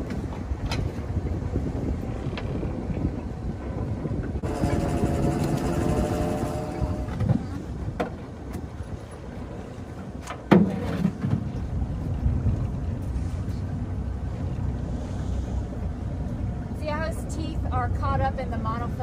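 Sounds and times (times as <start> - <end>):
boat engine rumble: 0.0 - 19.0
wind on microphone: 0.0 - 19.0
knocks and clunks of net hauling: 10.0 - 11.7.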